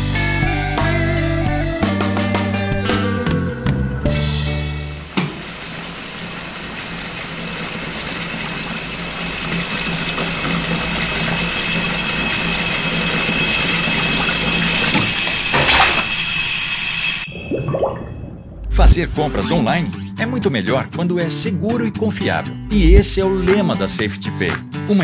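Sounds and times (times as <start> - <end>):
water running from a tap: 4.8 - 18.0.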